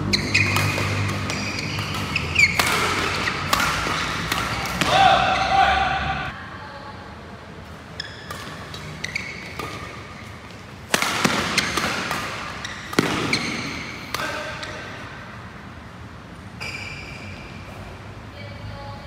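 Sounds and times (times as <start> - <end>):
racket striking shuttlecock: 0.0 - 5.5, 8.1 - 15.2
shoes squeaking on court floor: 0.0 - 5.8, 7.8 - 15.2, 16.5 - 18.1.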